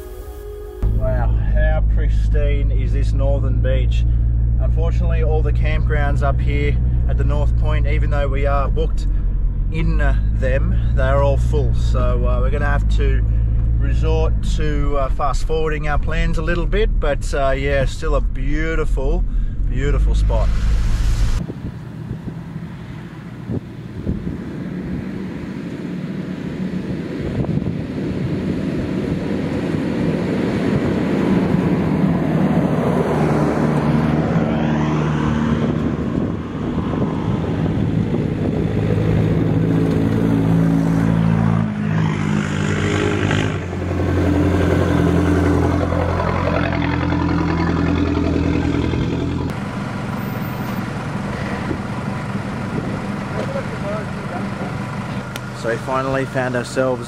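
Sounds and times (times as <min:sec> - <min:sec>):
vehicle engines under load: 0:21.4 - 0:57.0.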